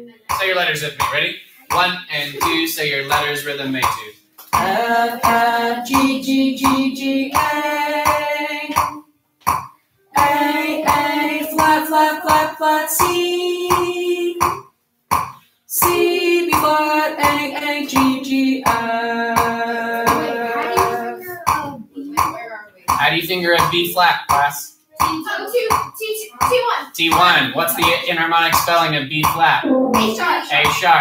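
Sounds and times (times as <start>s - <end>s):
person singing note names: 4.6s - 9.0s, 10.1s - 14.6s, 15.8s - 21.8s, 27.1s - 28.2s, 29.6s - 30.9s.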